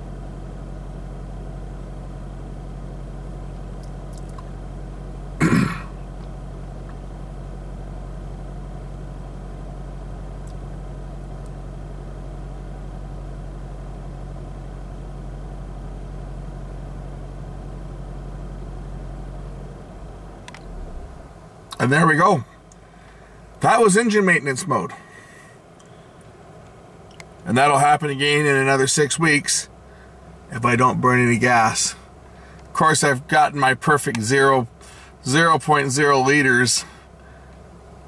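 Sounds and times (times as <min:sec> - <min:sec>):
car engine idling: 0:00.0 - 0:38.0.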